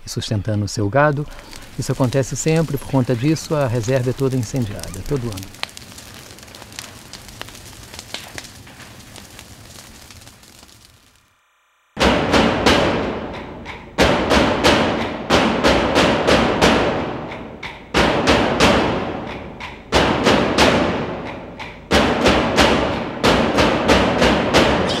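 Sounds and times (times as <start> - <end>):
heavy drum strikes: 12.0 - 24.8.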